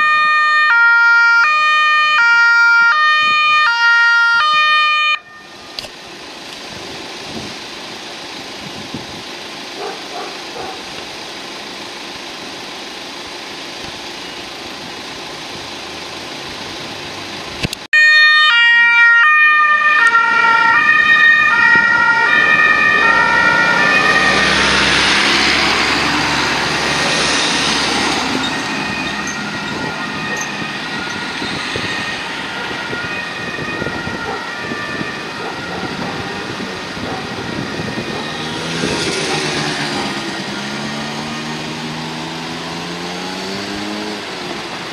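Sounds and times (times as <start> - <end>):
two-tone police siren: 0.0 - 5.8, 18.0 - 42.7
road traffic noise: 0.0 - 44.9
vehicles passing close by: 0.0 - 44.9.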